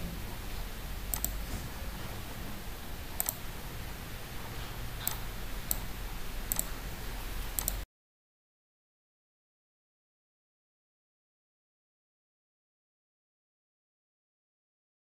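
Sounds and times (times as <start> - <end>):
low steady hum: 0.0 - 7.8
computer mouse clicks: 1.1 - 1.5, 3.1 - 3.5, 5.0 - 6.8, 7.5 - 7.8.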